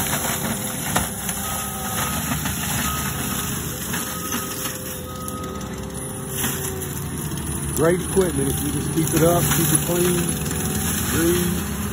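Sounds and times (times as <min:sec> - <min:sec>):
mulching machine running: 0:00.0 - 0:11.9
backup alarm beeps: 0:01.4 - 0:05.7.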